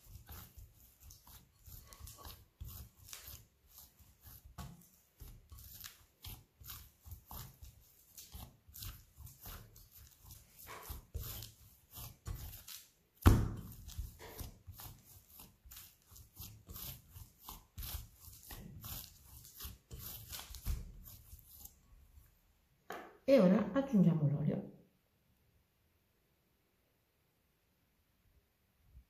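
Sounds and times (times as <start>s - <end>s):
hands kneading dough: 0.0s - 22.8s.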